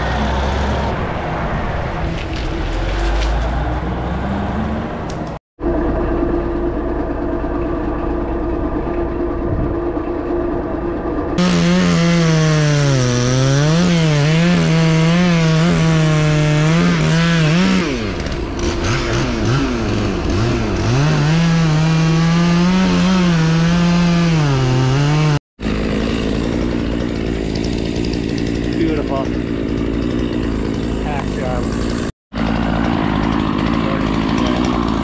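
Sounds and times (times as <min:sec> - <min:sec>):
chainsaw cutting wood: 0:11.4 - 0:35.0.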